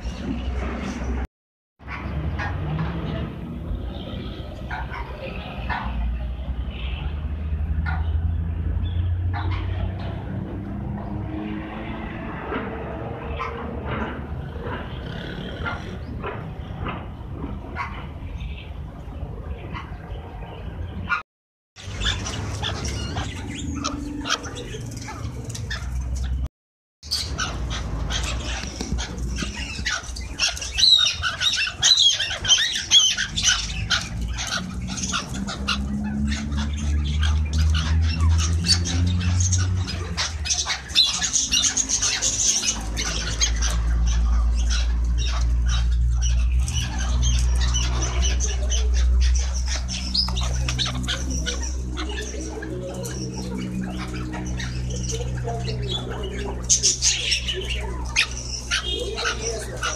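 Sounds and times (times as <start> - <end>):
partridges clucking and chattering: 27.0 - 59.9.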